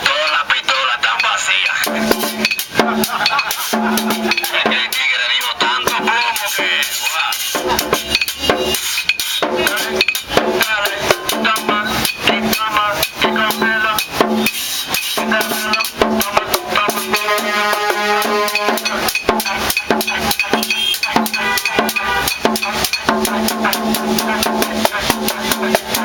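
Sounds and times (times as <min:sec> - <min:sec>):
metal scraper struck: 0:01.2 - 0:25.2
hand drums played with sticks: 0:01.2 - 0:26.0
large double-headed drum: 0:01.8 - 0:08.8, 0:09.4 - 0:14.6, 0:15.2 - 0:26.0
voice through horn loudspeaker: 0:16.7 - 0:19.1.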